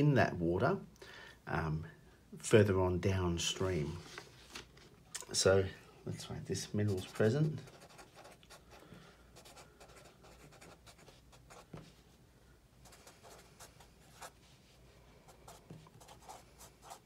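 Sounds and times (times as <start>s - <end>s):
marker scratching on paper: 6.8s - 8.6s, 9.4s - 12.0s, 12.8s - 14.6s, 15.4s - 17.0s.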